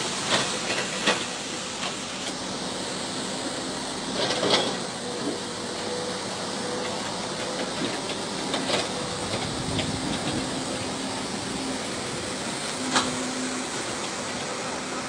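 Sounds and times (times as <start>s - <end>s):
floodwater rushing: 8.9s - 15.0s.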